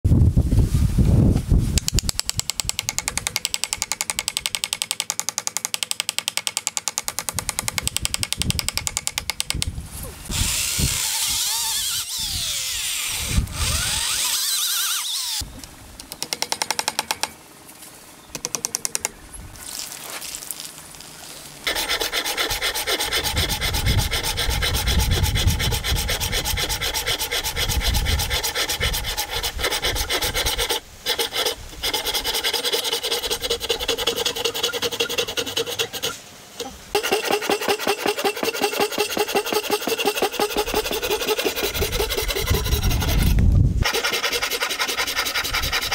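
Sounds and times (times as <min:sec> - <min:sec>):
drill spinning down: 0:10.3 - 0:15.4
hand saw cutting wood: 0:10.3 - 0:15.4, 0:21.7 - 0:36.2, 0:37.0 - 0:45.9.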